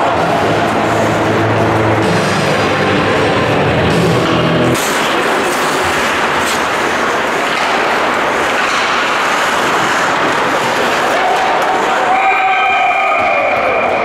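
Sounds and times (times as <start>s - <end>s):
background music: 0.0s - 7.0s
ice hockey game crowd noise: 0.0s - 14.0s.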